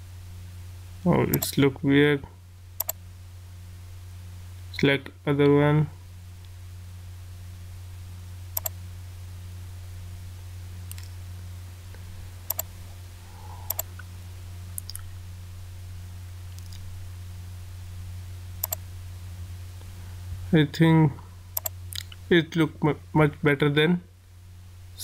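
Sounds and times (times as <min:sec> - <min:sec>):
low electrical hum: 0:00.0 - 0:25.0
computer mouse clicking: 0:02.8 - 0:03.0, 0:08.6 - 0:08.8, 0:10.9 - 0:11.2, 0:12.5 - 0:12.7, 0:13.7 - 0:14.1, 0:14.8 - 0:15.1, 0:16.5 - 0:16.8, 0:18.6 - 0:18.8, 0:21.6 - 0:22.2.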